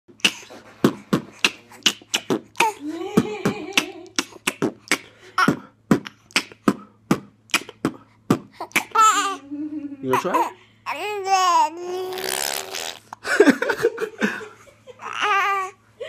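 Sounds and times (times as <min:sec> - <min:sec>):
man beatboxing: 0:00.1 - 0:02.8, 0:03.8 - 0:08.9.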